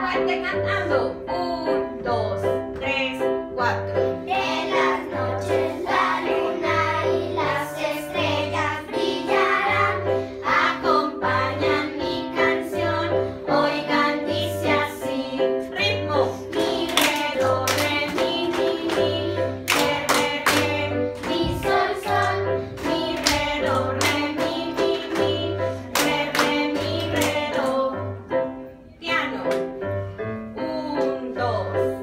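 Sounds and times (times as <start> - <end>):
children singing: 4.3 - 28.1
hands clapping: 16.5 - 21.5, 22.2 - 24.3, 25.9 - 27.5.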